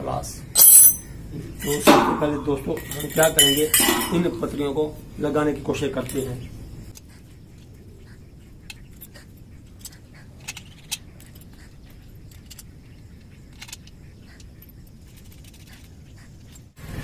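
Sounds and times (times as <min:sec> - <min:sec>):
metal clicks and clinks: 0:00.6 - 0:01.1, 0:02.8 - 0:04.3.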